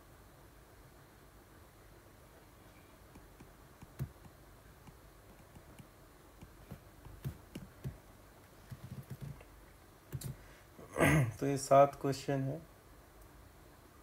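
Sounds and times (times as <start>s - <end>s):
stylus tapping on tablet screen: 3.1s - 8.0s, 8.7s - 9.5s.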